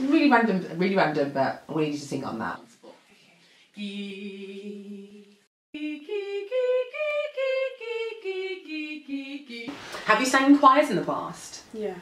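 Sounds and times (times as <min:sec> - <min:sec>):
woman singing vocal warm-up: 0:03.7 - 0:10.0.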